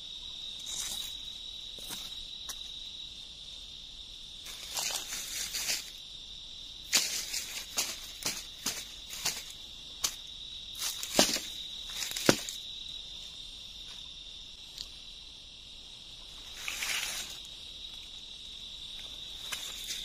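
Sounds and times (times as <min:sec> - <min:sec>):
high-pitched insect drone: 0:00.0 - 0:20.0
dry leaves rustling: 0:04.5 - 0:06.0, 0:06.9 - 0:12.7, 0:16.3 - 0:17.5, 0:19.1 - 0:20.0
bamboo poles knocking: 0:10.9 - 0:12.6.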